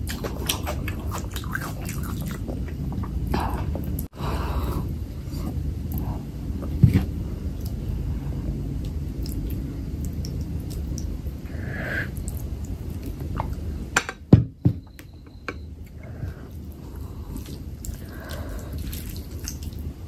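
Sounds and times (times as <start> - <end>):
chewing: 0.0 - 4.1, 8.8 - 11.4, 15.8 - 19.9.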